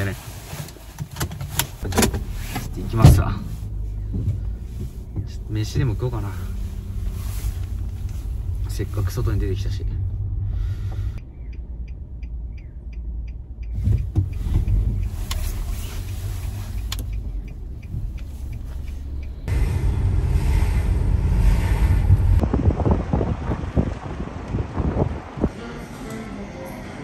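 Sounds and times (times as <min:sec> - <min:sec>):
road noise inside car: 0:00.0 - 0:27.0
van engine rumble: 0:00.0 - 0:27.0
light evenly spaced ticks: 0:11.0 - 0:19.5.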